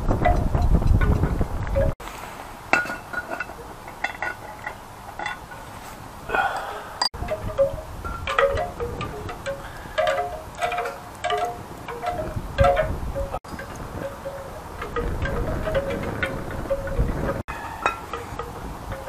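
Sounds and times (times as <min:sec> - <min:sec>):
wind buffeting microphone: 0:00.0 - 0:02.0, 0:03.6 - 0:19.0
metallic chiming and clinking: 0:07.1 - 0:19.0.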